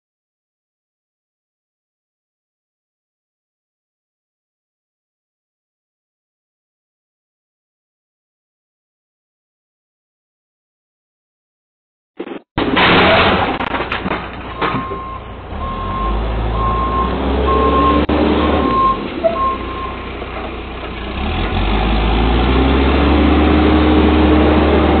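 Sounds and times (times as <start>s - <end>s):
backhoe diesel engine: 12.6s - 25.0s
reversing alarm beeping: 14.6s - 20.0s.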